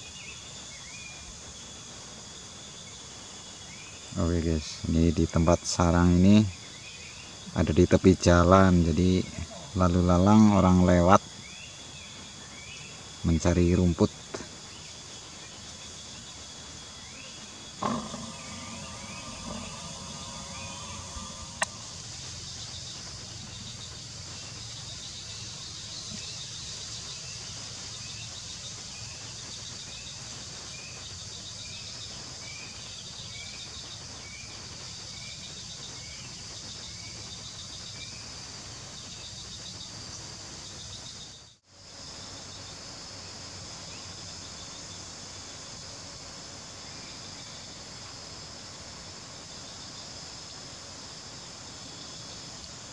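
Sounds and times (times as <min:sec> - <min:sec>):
insects chirring: 0:00.0 - 0:52.9
steady hum: 0:14.4 - 0:26.2.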